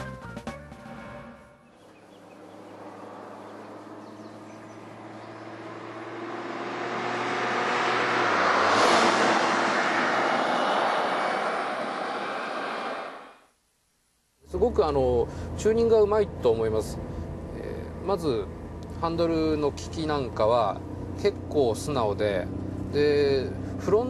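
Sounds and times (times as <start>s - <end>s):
van driving past: 1.7s - 13.3s.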